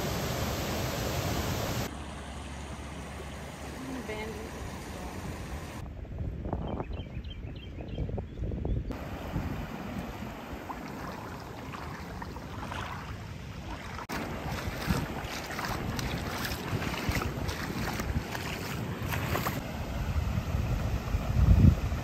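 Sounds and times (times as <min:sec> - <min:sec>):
creek water running over rocks: 0:02.6 - 0:05.8, 0:08.9 - 0:19.6
wind buffeting microphone: 0:05.3 - 0:22.0.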